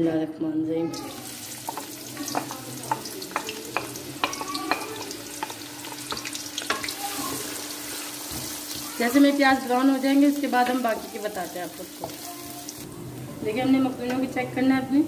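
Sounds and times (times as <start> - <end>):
onions sizzling in hot oil: 0.9 - 13.0.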